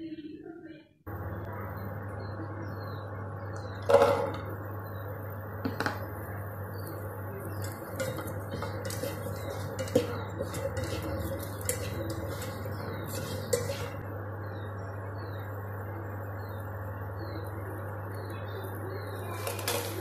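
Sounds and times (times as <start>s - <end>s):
steady low hum: 1.0s - 20.0s
spatula scraping nonstick pan: 7.4s - 14.1s, 19.3s - 20.0s.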